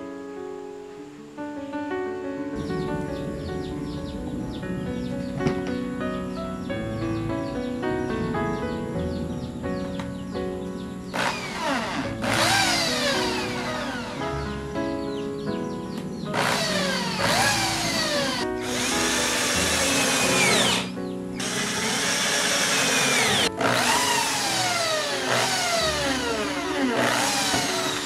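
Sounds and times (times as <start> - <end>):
background music: 0.0 - 28.0
cordless drill whining: 11.1 - 14.3, 16.3 - 28.0.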